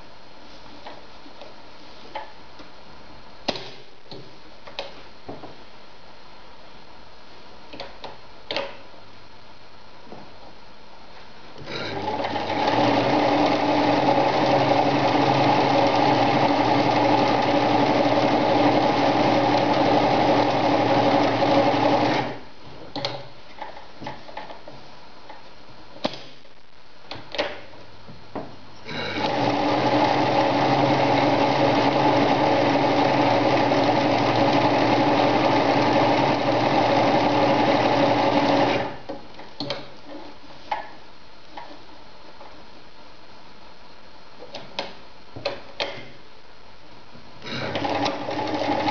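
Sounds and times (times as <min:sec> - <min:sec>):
sewing machine stitching: 0:11.6 - 0:22.4, 0:28.8 - 0:39.0, 0:47.4 - 0:48.9.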